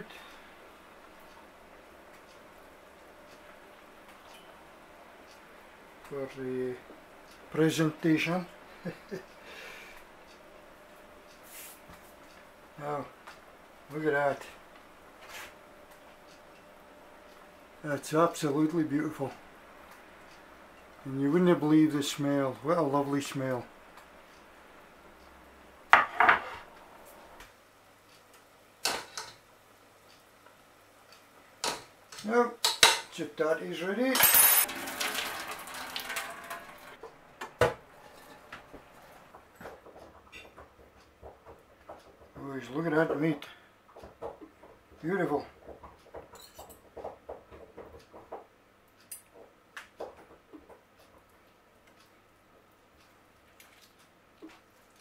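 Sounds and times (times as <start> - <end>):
kitchen utensils clattering: 34.1 - 37.0, 46.2 - 47.0.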